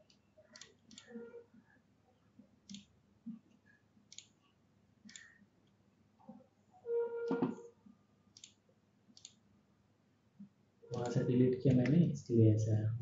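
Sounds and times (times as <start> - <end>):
computer mouse clicking: 0.0 - 1.2, 2.6 - 3.0, 4.1 - 4.4, 5.0 - 5.8, 8.3 - 9.4
brief loud tone: 6.9 - 7.7.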